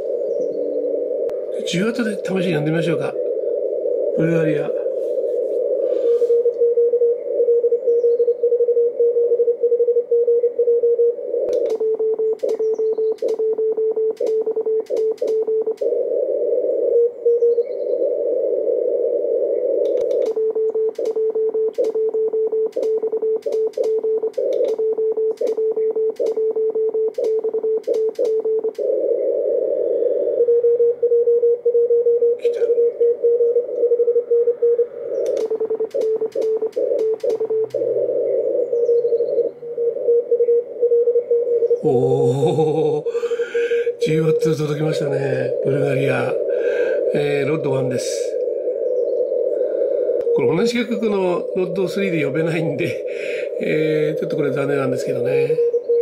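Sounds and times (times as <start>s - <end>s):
radio receiver hiss: 0.0s - 7.7s, 10.5s - 17.4s, 18.0s - 31.2s, 32.4s - 41.3s, 43.0s - 55.8s
morse code tone: 8.6s - 16.1s, 19.9s - 29.0s, 30.5s - 38.1s
sharp clicks: 11.5s - 15.9s, 19.8s - 28.9s, 35.2s - 37.9s.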